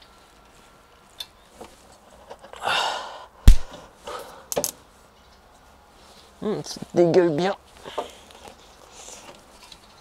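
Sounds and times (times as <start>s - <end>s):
breathy exhale: 2.6s - 3.4s
sharp metallic snap: 3.4s - 3.8s.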